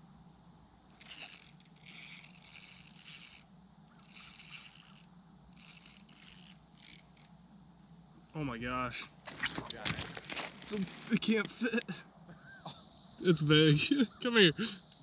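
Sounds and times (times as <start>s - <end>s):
fishing reel whirring: 1.0s - 7.3s.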